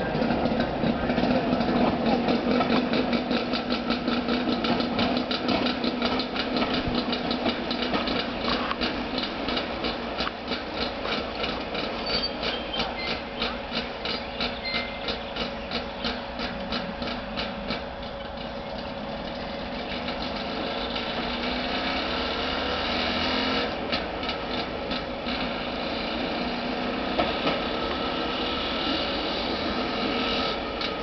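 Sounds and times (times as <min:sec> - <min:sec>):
rail trolley engine: 0:00.0 - 0:31.0.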